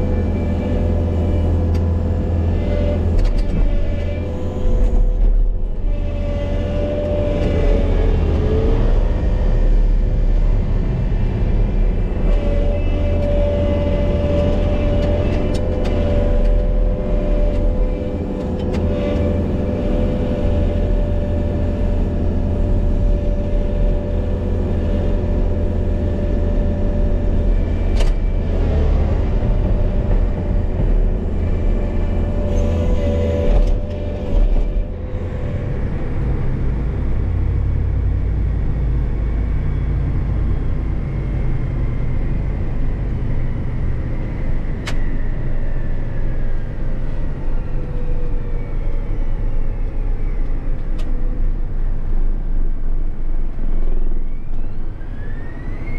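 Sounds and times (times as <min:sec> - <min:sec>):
tractor engine droning with whine: 0:00.0 - 0:55.9.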